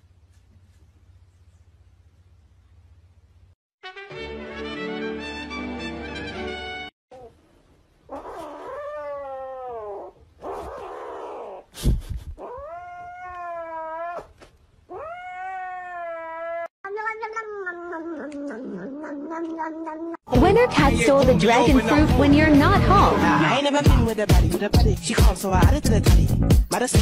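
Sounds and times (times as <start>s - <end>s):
cat yowling: 8.1s - 11.6s, 12.4s - 14.3s, 14.9s - 20.2s
cat meowing: 12.4s - 14.3s, 14.9s - 20.2s.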